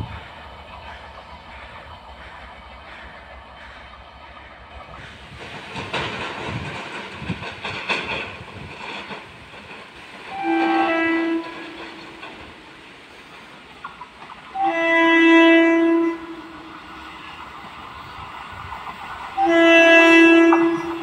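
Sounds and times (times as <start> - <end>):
rushing noise with knocks: 4.9 - 12.7
train horn: 10.3 - 12.2, 14.5 - 17.2, 19.4 - 21.0.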